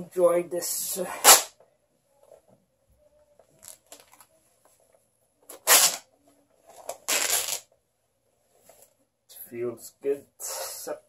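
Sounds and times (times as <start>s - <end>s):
fabric tearing by hand: 1.2s - 1.5s, 5.5s - 6.0s, 6.9s - 7.7s.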